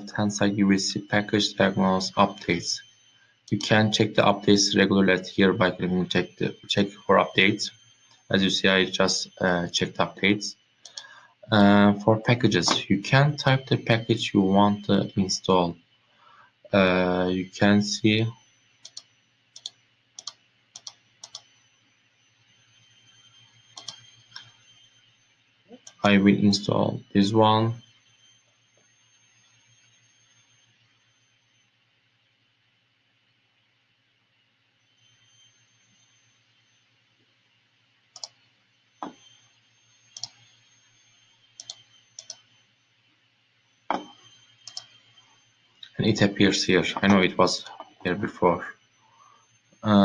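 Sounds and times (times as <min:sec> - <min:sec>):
faint steady hum: 0:00.0 - 0:50.0
computer mouse clicking: 0:18.8 - 0:21.5, 0:23.8 - 0:24.4, 0:40.2 - 0:40.4, 0:41.6 - 0:42.4, 0:43.9 - 0:44.9.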